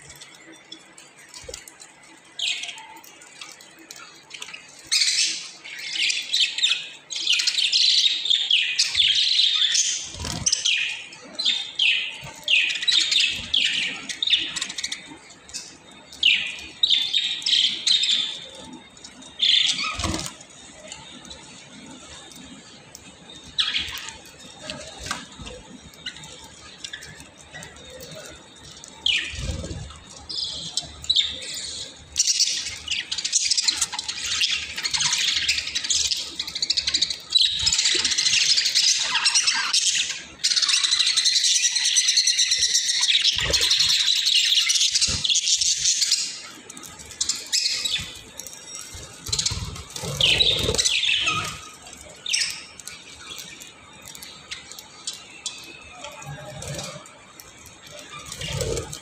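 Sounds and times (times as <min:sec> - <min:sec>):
budgerigars chattering: 0:49.0 - 0:51.7.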